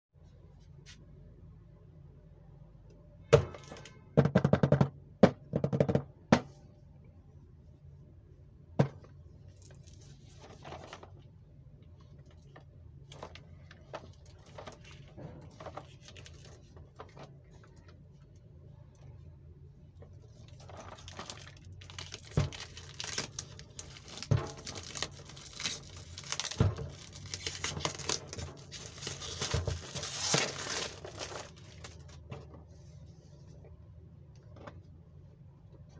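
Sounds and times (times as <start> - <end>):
plastic shrink wrap crinkling and tearing: 20.3 - 32.3.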